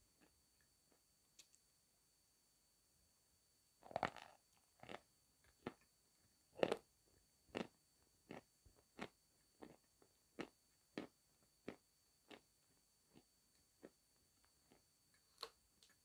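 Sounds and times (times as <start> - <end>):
crunchy chewing: 3.8 - 5.9, 6.6 - 6.9, 7.5 - 16.0.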